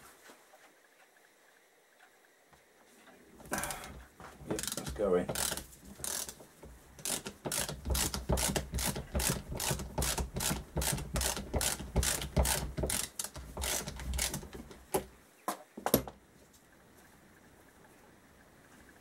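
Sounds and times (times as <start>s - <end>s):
socket ratchet clicking: 4.6s - 6.4s, 7.0s - 14.5s.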